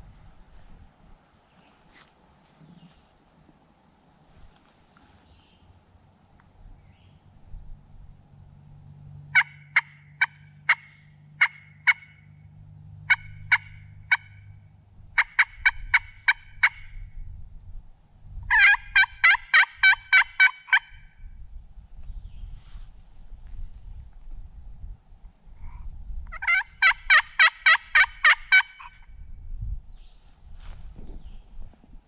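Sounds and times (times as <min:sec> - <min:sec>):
turkey call yelps: 0:09.3 - 0:12.3, 0:13.1 - 0:14.5, 0:15.2 - 0:17.0, 0:18.5 - 0:21.1, 0:26.3 - 0:29.1.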